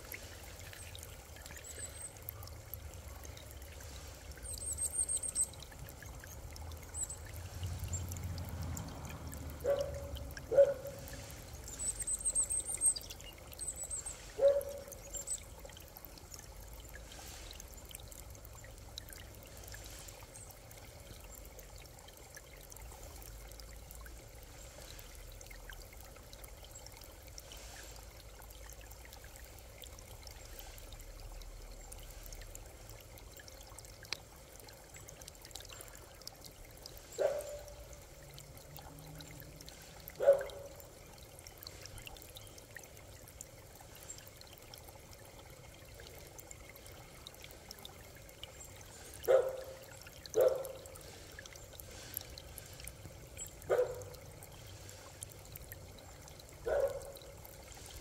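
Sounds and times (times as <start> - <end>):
creek water trickling over stones: 0.0 - 58.0.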